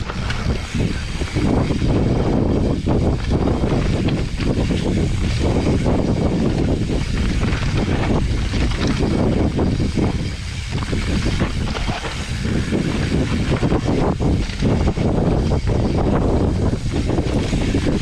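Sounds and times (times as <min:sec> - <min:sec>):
bike knocking and rattling: 0:00.0 - 0:18.0
wind rushing over microphone: 0:00.0 - 0:18.0.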